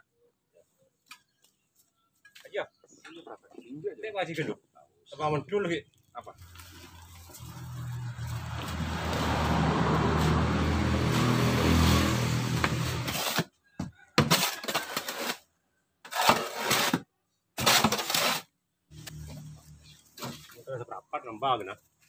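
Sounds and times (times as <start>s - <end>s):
vehicle engine running: 6.4s - 13.2s
soil sliding from steel wheelbarrow: 6.4s - 13.5s, 14.3s - 15.4s, 16.1s - 17.0s, 17.6s - 18.5s.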